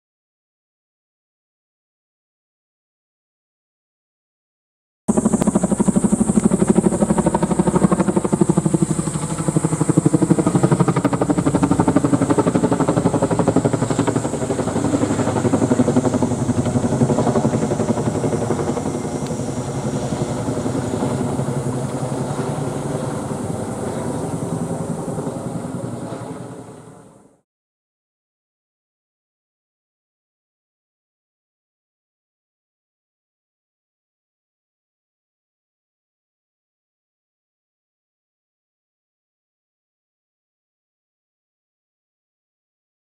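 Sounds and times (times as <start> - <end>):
helicopter high whine: 5.1 - 27.4
helicopter rotor beat: 5.1 - 27.4.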